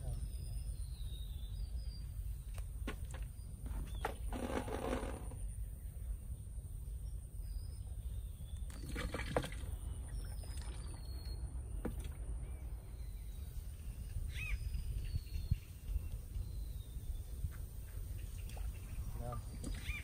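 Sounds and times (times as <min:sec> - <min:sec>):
thin bird calls: 0:07.4 - 0:20.0.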